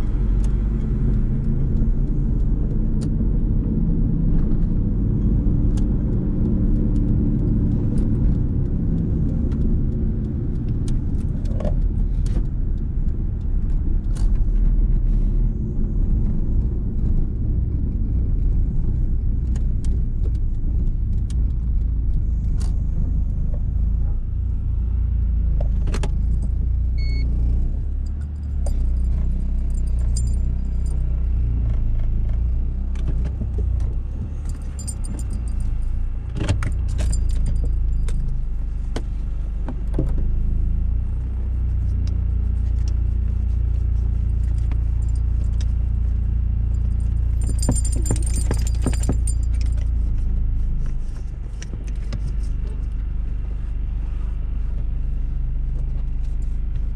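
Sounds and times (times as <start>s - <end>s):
car cabin rumble: 0.0s - 56.9s
metal chain leash jingling: 28.0s - 31.0s, 34.3s - 36.0s, 36.7s - 38.4s, 46.7s - 49.9s.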